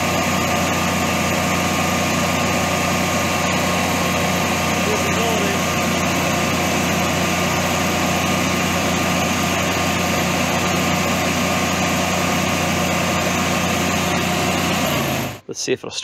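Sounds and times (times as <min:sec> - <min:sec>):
generator engine running: 0:00.0 - 0:15.5.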